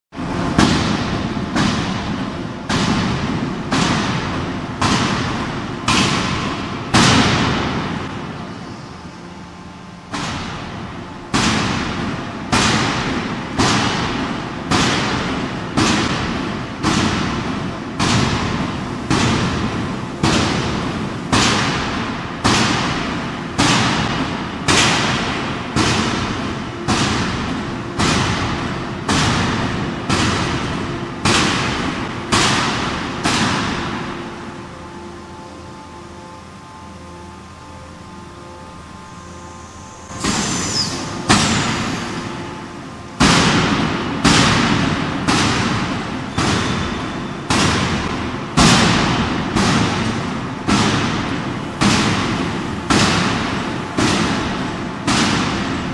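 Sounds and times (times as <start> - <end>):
forging hammer striking metal: 10.1 - 36.5, 37.6 - 55.9.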